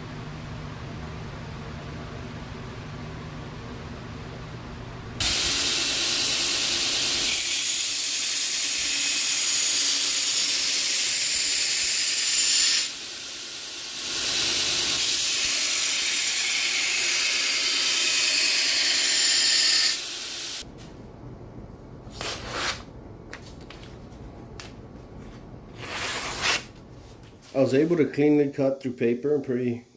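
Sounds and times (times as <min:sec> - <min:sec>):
belt grinder hissing on steel: 0:05.2 - 0:20.6
paper rustling: 0:22.2 - 0:27.6.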